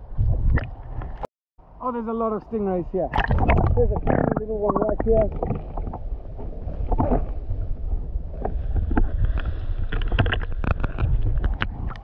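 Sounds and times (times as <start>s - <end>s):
muffled underwater water rushing: 3.1s - 12.0s.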